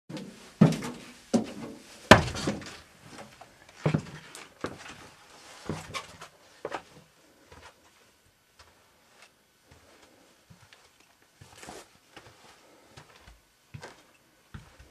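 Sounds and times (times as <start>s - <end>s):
footsteps on carpeted floor: 6.6s - 14.9s.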